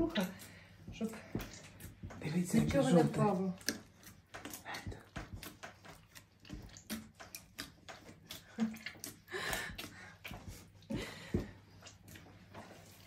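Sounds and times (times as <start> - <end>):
hands kneading wet dough: 0.0 - 13.0.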